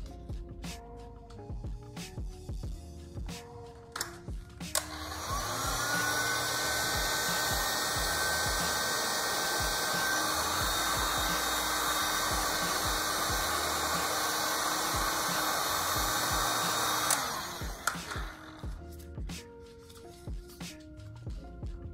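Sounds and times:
heat gun fan blowing: 0:04.0 - 0:18.8.

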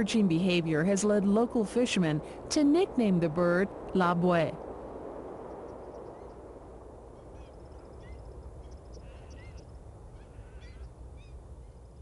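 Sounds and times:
steady low rush: 0:00.0 - 0:12.0
high bird calls: 0:07.1 - 0:11.9.

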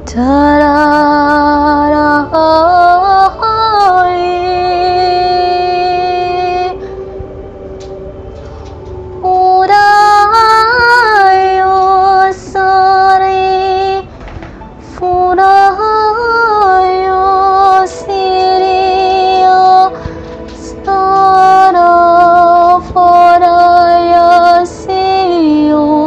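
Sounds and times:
woman singing wordless syllables: 0:15.0 - 0:26.0.

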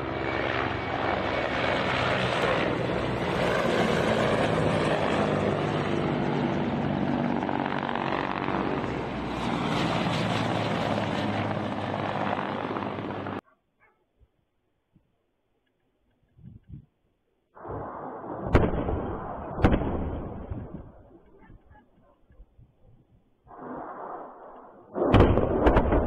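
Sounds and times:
helicopter flying low overhead: 0:00.0 - 0:13.4.

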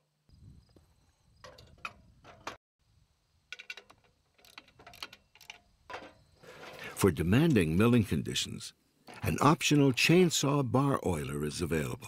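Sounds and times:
metal bracket clicks and knocks: 0:03.5 - 0:06.8.

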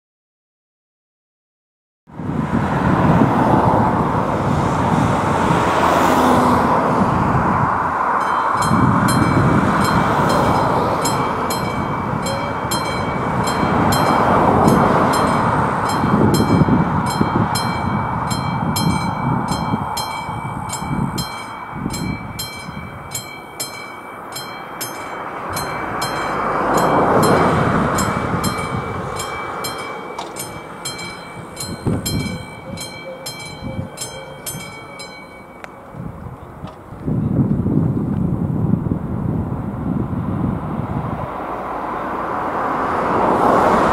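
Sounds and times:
rushing noise with low rumble: 0:02.1 - 0:43.9
level crossing warning bell: 0:08.1 - 0:36.8.

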